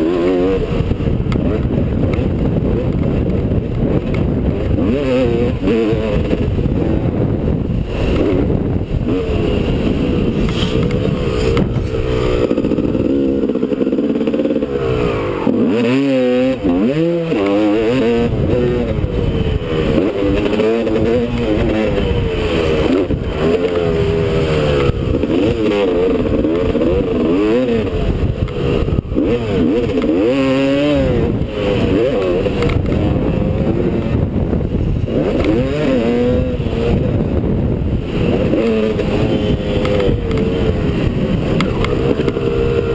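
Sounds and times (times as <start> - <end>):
dirt bike engine revving: 0.0 - 42.9.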